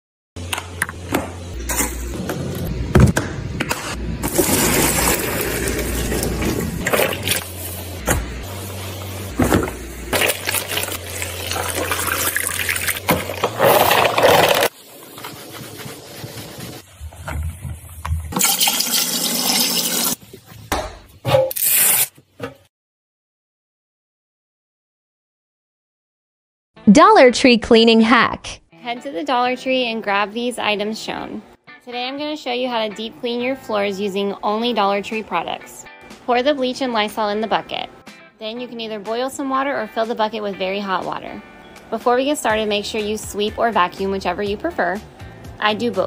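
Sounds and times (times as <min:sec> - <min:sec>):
water sloshing in mop bucket: 0:04.3 - 0:07.5, 0:09.5 - 0:18.9.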